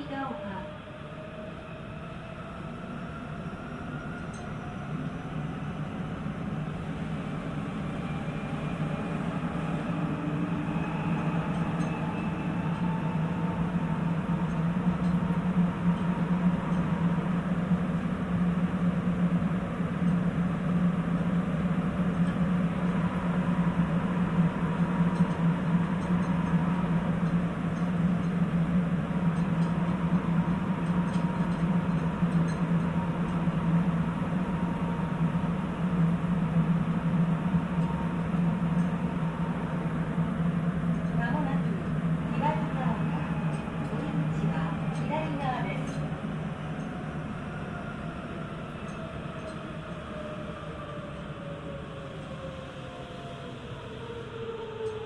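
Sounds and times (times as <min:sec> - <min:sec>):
subway car running hum: 0:00.0 - 0:55.0.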